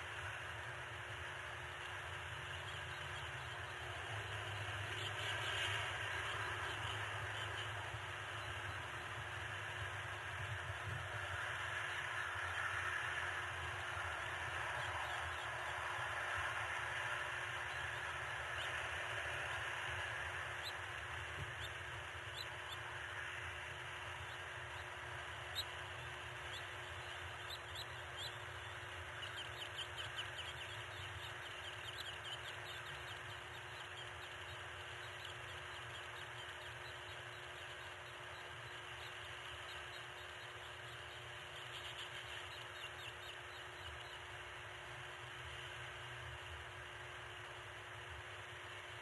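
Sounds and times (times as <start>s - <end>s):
steady outdoor hiss: 0.0s - 49.0s
faint bird chirps: 1.8s - 46.0s.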